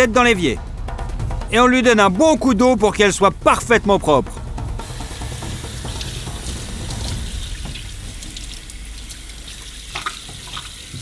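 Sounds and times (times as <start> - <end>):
tap water running: 4.8 - 11.0.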